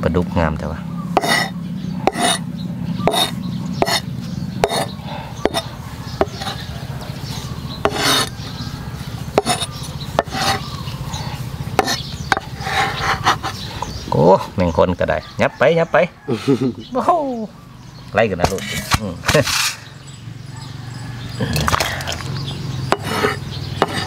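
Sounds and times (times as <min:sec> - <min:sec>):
steady low hum: 0:00.0 - 0:15.4
rasping scraping strokes: 0:01.2 - 0:06.7, 0:07.8 - 0:08.5, 0:09.3 - 0:13.7, 0:18.5 - 0:19.9, 0:22.9 - 0:24.0.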